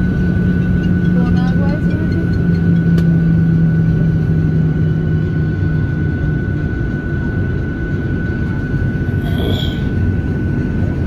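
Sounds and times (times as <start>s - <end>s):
high engine whine: 0.0s - 11.0s
jet engine rumble: 0.0s - 11.0s
lower hum: 8.9s - 10.8s.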